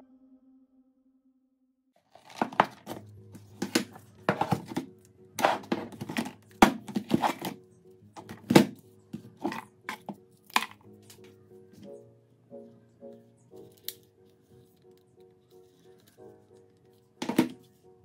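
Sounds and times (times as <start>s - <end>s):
soft background music: 2.0s - 18.0s
phones knocking in a bucket: 2.2s - 7.6s.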